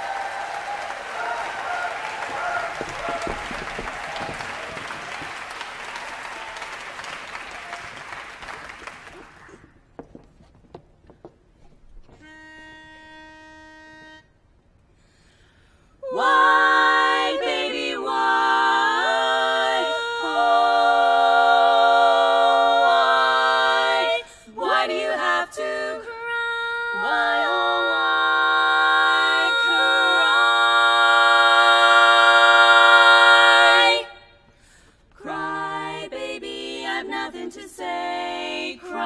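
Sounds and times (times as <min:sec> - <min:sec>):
applause: 0:00.0 - 0:09.7
women singing a cappella harmony: 0:16.0 - 0:34.5, 0:35.2 - 0:39.0.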